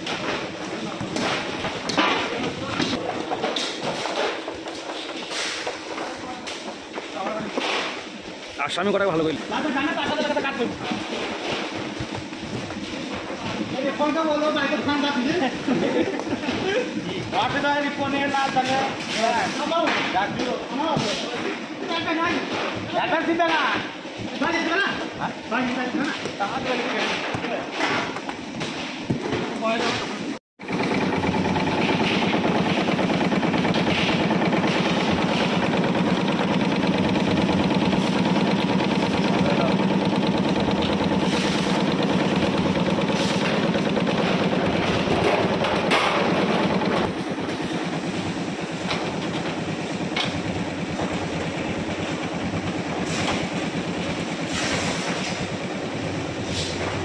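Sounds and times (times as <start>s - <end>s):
machinery droning: 30.6s - 57.0s.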